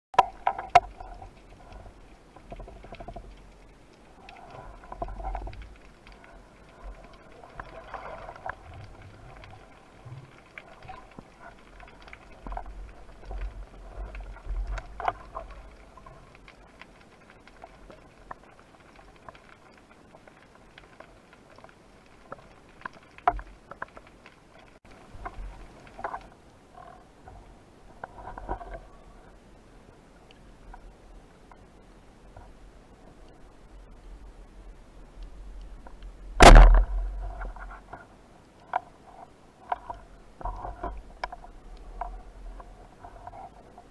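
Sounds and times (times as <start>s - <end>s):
low rumble of water: 0.2s - 43.9s
underwater clicks and crackles: 0.2s - 43.9s
faint low rumble: 24.9s - 43.9s.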